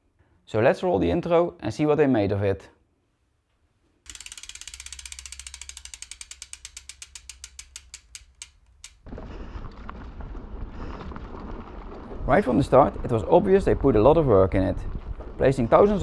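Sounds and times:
bike freehub ratchet clicking: 4.1s - 9.1s.

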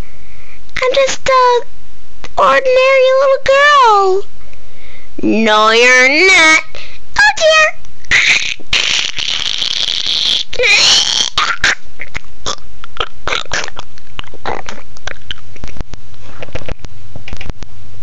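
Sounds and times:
child squealing vocal effects: 7.3s - 15.4s.

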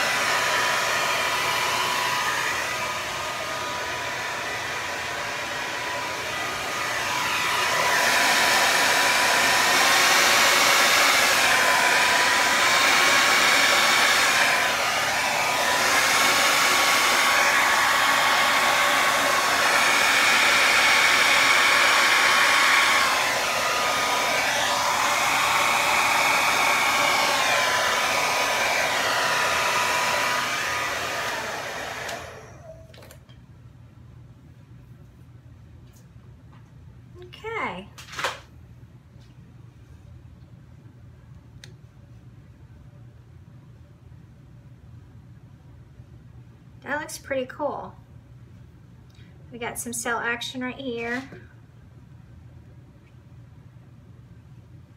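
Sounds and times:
hair dryer blowing: 0.0s - 33.2s.

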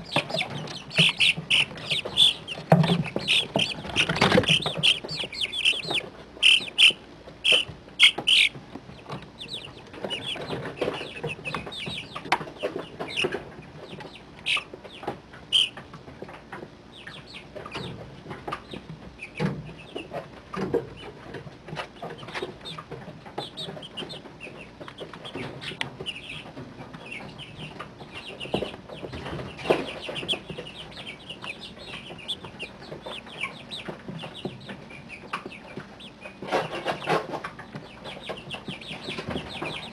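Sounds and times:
chicks peeping and chirping: 0.0s - 39.9s.

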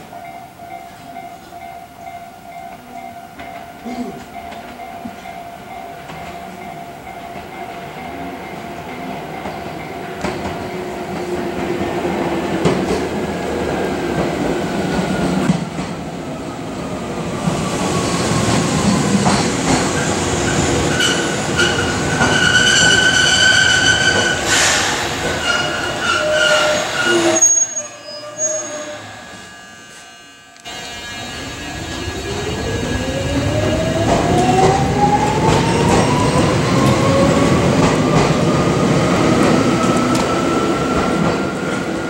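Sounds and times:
electric train whine: 4.4s - 42.0s
train brakes squealing: 17.6s - 37.3s.

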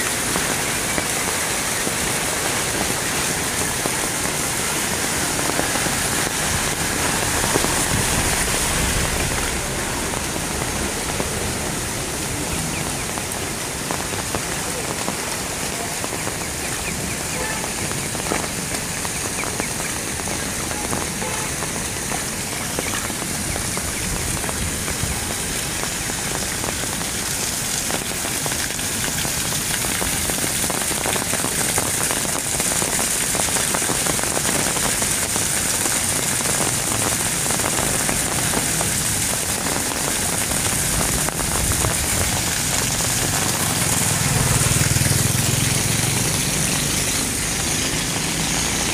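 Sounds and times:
heavy rain pouring on street: 0.0s - 48.9s
vehicle engine low hum: 41.0s - 48.9s.

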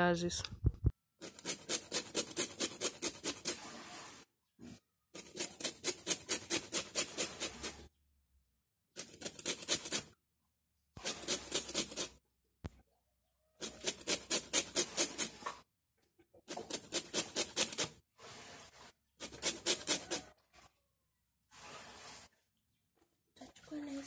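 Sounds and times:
lemon scraping on metal grater: 1.2s - 3.9s, 5.2s - 7.9s, 9.0s - 10.1s, 11.0s - 12.2s, 13.6s - 15.5s, 16.5s - 20.3s.

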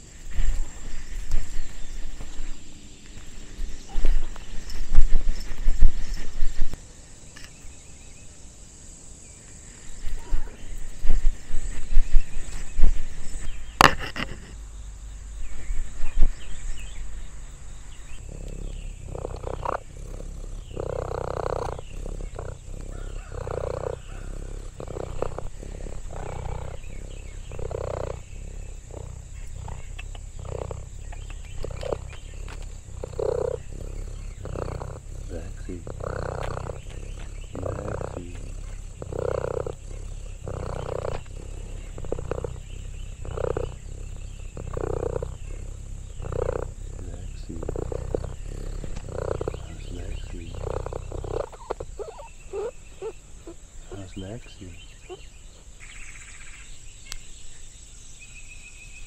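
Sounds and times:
cat purring: 0.0s - 6.8s, 9.6s - 56.4s
irregular bumps: 0.0s - 6.8s, 9.9s - 52.0s
sharp click: 7.4s - 7.6s.

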